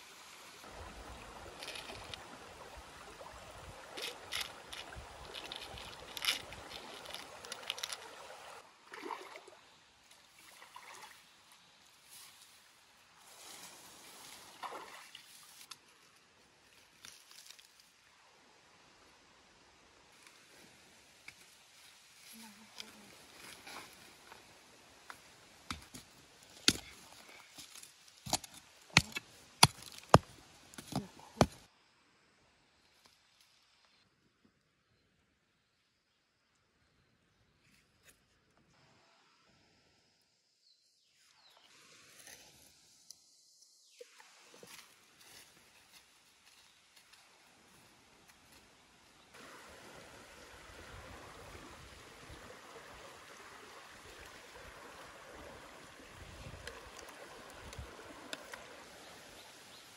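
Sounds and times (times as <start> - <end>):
digging tool chopping into soil: 28.2 - 31.6
dirt scattering: 28.2 - 31.6.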